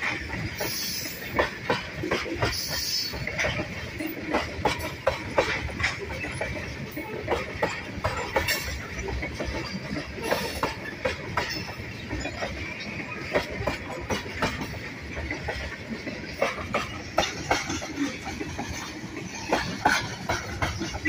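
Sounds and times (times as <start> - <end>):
sharp clacks of wheels on track: 0.0 - 21.0
train wheels rumbling on rail: 0.0 - 21.0.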